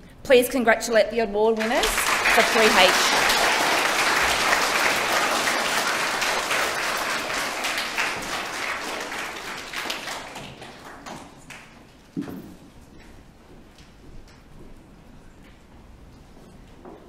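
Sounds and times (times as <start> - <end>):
audience applauding: 1.6 - 11.8.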